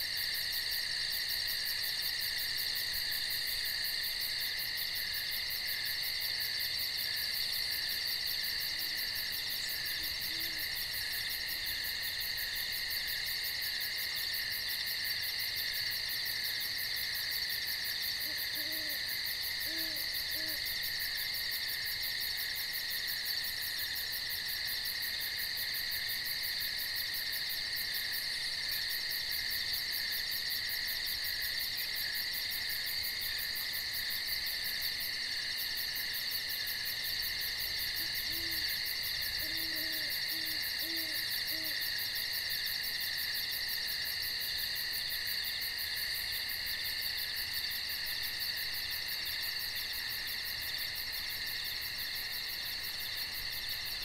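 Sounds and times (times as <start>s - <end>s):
crickets and insects chirping: 0.0s - 54.0s
owl hooting: 10.0s - 10.6s, 18.2s - 19.0s, 19.6s - 20.6s, 38.0s - 41.8s.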